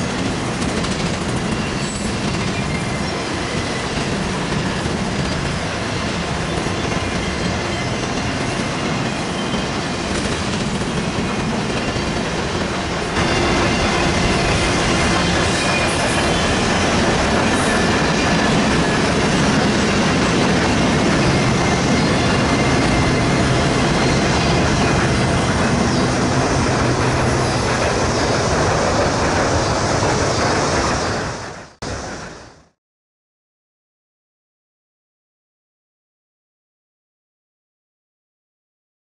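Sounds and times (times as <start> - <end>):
freight train wheels rumbling: 0.0 - 32.8.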